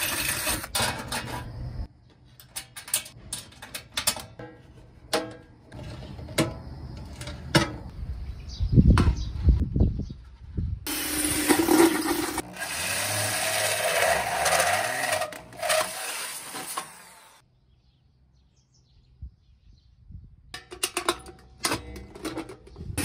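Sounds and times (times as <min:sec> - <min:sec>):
hole saw grinding through steel: 0:00.0 - 0:01.5, 0:10.9 - 0:17.4.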